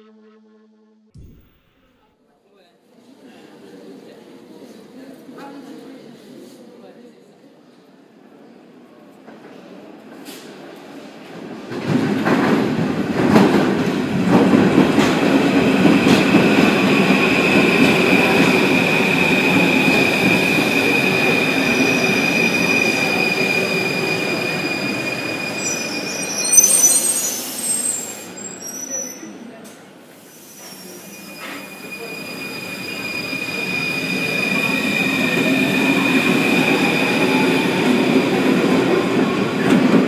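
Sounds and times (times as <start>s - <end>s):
high-pitched wheel and brake squeal: 21.8s - 29.5s, 30.3s - 35.3s.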